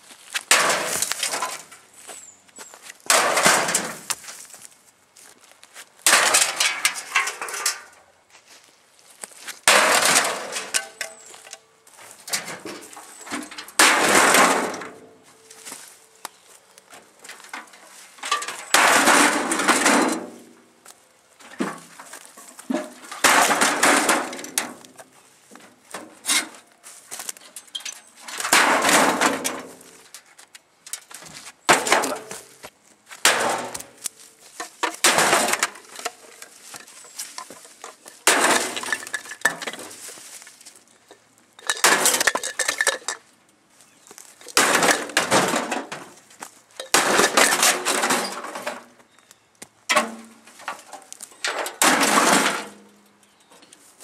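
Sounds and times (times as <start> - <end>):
sheet metal crashing and rattling: 0.5 - 1.7, 3.1 - 4.0, 6.1 - 7.9, 9.7 - 11.3, 12.3 - 15.0, 18.2 - 20.4, 22.7 - 24.8, 27.6 - 30.0, 33.2 - 34.0, 34.8 - 40.1, 41.6 - 43.2, 44.5 - 46.2, 46.8 - 48.9, 50.0 - 52.9.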